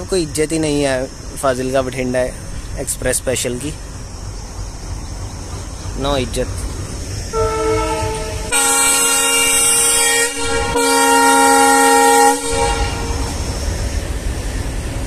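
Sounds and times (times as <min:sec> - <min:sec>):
locomotive engine rumbling: 0:00.0 - 0:15.0
diesel locomotive horn: 0:07.3 - 0:13.5.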